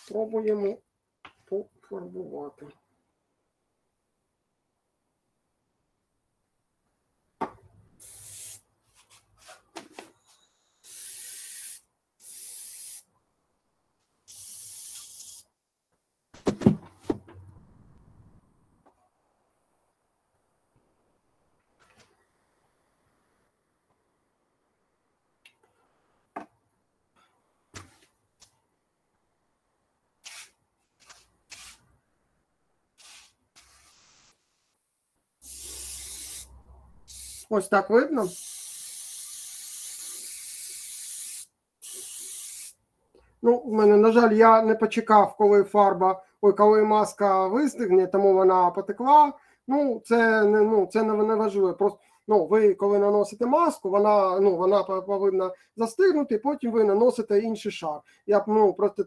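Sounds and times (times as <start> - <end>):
spray paint hissing: 8.0 - 8.7, 10.8 - 13.1, 14.3 - 15.5, 30.2 - 30.6, 31.5 - 31.8, 33.0 - 34.7, 35.4 - 37.5, 38.2 - 42.8.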